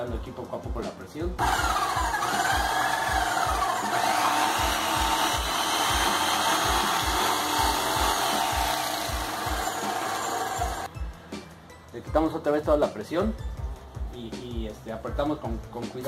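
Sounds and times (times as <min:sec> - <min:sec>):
pump knocking: 0:04.0 - 0:10.9.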